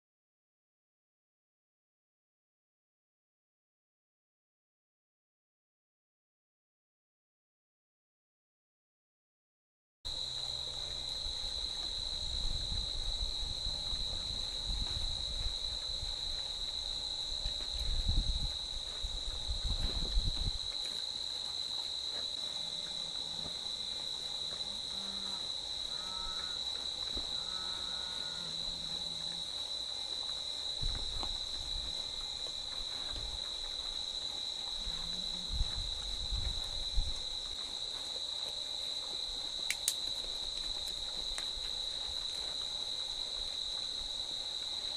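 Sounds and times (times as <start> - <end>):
night insects trilling: 10.1 - 44.9
dull low thumps: 17.5 - 20.7.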